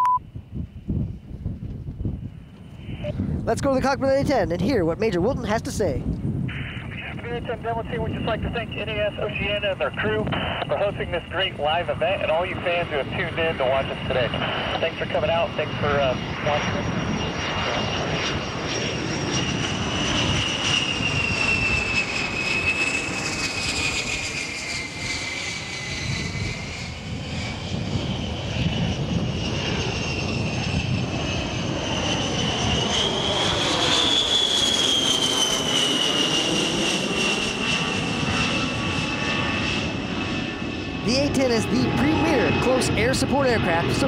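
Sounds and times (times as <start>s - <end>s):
jet engines whining in flight: 0.0s - 44.0s.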